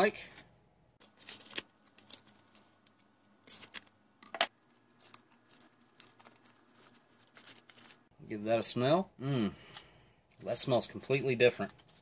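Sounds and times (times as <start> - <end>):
foil wrapper tearing and crinkling: 1.0 - 8.1.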